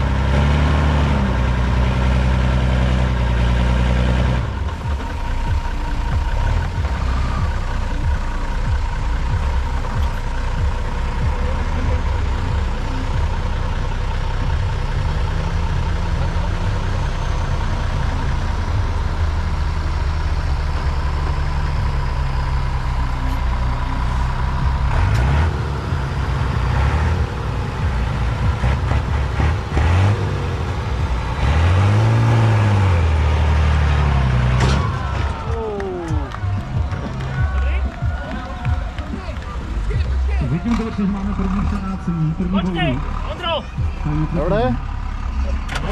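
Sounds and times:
truck engine running under load: 0:00.0 - 0:45.9.

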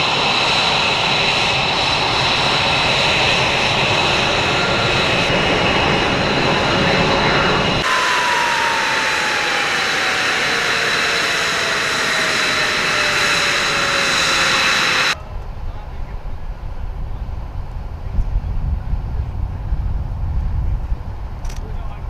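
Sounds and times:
jet engine spooling down: 0:00.0 - 0:15.2
jet engines whining: 0:00.0 - 0:15.2.

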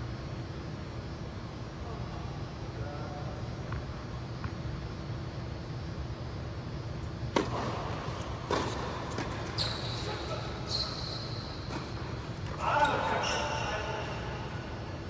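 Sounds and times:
steady low hum: 0:00.0 - 0:15.0
tennis ball hits echoing: 0:07.3 - 0:09.5.

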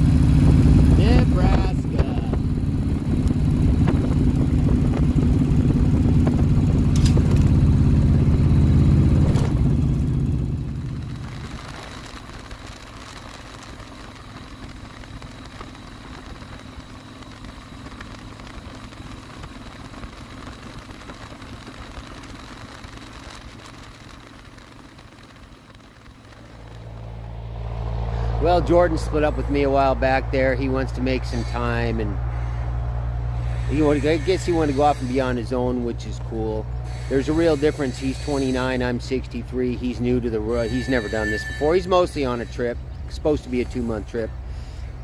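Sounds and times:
wind noise: 0:00.0 - 0:09.7
motorcycle engine running: 0:00.0 - 0:45.0.

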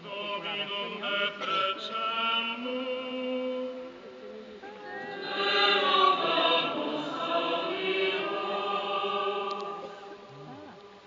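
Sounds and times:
choir singing held notes: 0:04.8 - 0:10.3.

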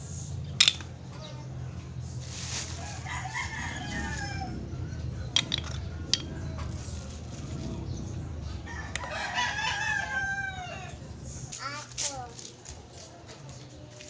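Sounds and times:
rooster crowing: 0:02.8 - 0:05.0, 0:08.4 - 0:11.2.

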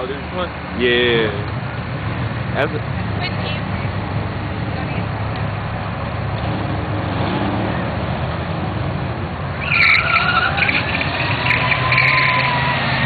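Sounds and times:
drag racing engines revving: 0:00.0 - 0:13.0
tires squealing: 0:06.3 - 0:13.0.

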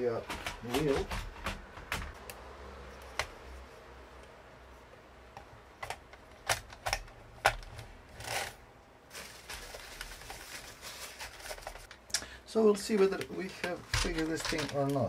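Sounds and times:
plastic and metal parts clicking: 0:05.4 - 0:08.6, 0:12.8 - 0:15.0.

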